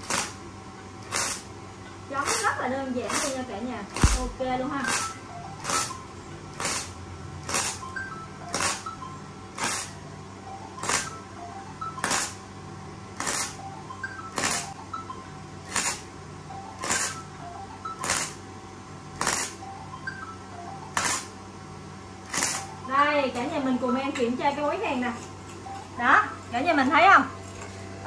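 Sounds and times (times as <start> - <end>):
welding arc crackling: 0.0 - 7.9, 8.5 - 8.9, 9.6 - 10.0, 10.8 - 11.2, 12.0 - 12.4, 13.2 - 13.6, 14.3 - 14.8, 15.7 - 16.1, 16.8 - 17.3, 18.0 - 18.4, 19.2 - 19.6, 20.9 - 21.3, 22.2 - 22.8.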